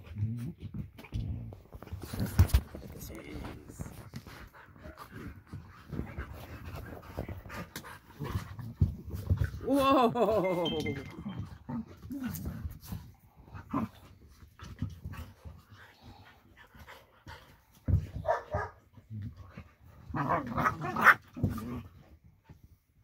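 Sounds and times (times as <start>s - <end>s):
dogs growling: 11.3s - 17.0s, 19.0s - 22.0s
dogs barking: 18.2s - 18.8s.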